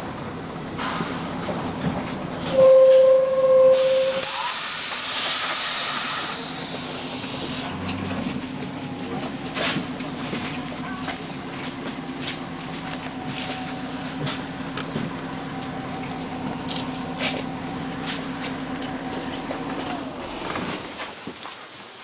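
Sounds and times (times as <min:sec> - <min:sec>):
bus engine idling: 0:00.0 - 0:21.2
compressed air hiss: 0:03.8 - 0:07.6.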